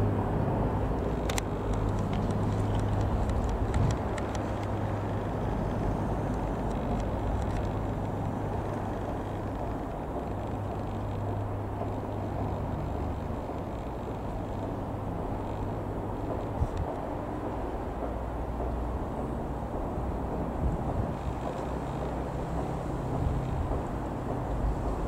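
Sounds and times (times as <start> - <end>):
light aircraft engine drone: 0.0 - 25.0
faint clicks: 6.2 - 18.8.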